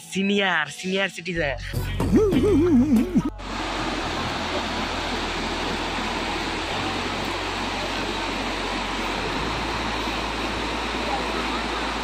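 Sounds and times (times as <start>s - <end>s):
waterfall rushing over rock: 3.4s - 12.0s.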